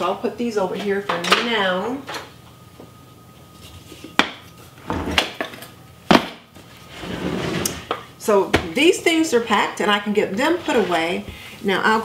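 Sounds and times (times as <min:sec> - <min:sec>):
scraping shuffle: 0:10.4 - 0:11.2.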